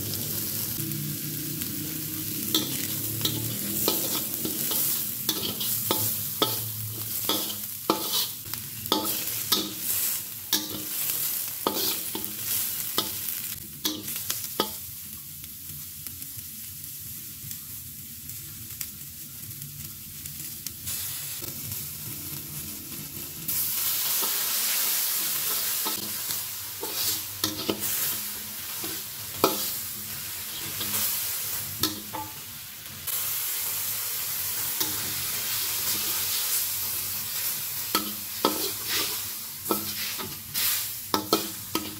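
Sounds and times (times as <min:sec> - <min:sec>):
onion and garlic sizzling in a wok: 0:00.0 - 0:41.9
metal spatula scraping a pan: 0:02.4 - 0:13.2, 0:26.8 - 0:29.9, 0:37.9 - 0:41.9.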